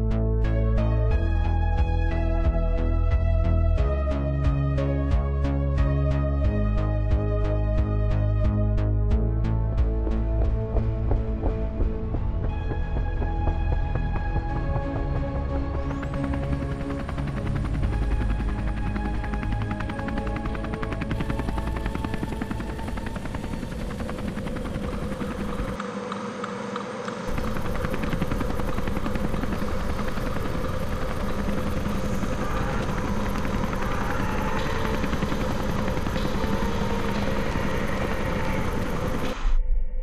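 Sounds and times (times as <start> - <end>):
helicopter engine drone: 12.5 - 39.5
helicopter rotor chop: 15.8 - 39.4.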